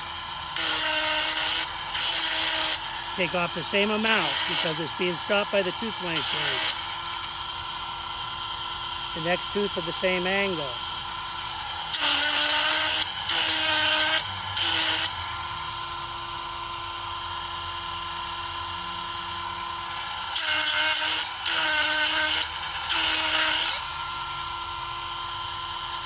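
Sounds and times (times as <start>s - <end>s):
chain-sharpening grinder whining: 0.0s - 26.0s
stone grinding saw chain tooth: 0.6s - 7.5s.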